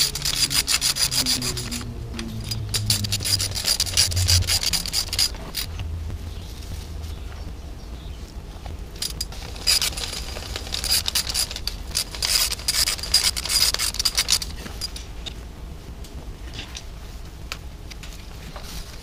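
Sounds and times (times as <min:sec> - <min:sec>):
engine parts scraping and clicking: 0:00.0 - 0:06.4, 0:08.6 - 0:15.4
low steady hum: 0:00.0 - 0:19.0.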